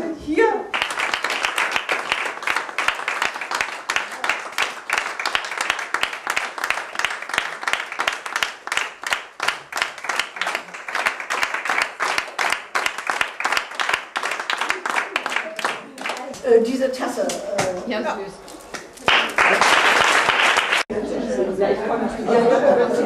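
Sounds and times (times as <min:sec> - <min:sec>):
crowd applauding: 0:00.7 - 0:16.3, 0:19.0 - 0:20.9.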